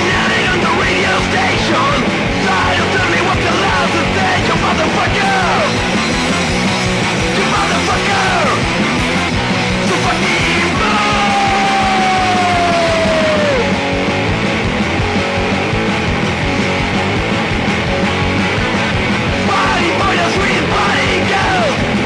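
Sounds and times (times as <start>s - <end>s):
bass guitar: 0.0s - 22.0s
distorted electric guitars: 0.0s - 22.0s
drums: 0.0s - 22.0s
person yelling vocals: 10.0s - 13.8s.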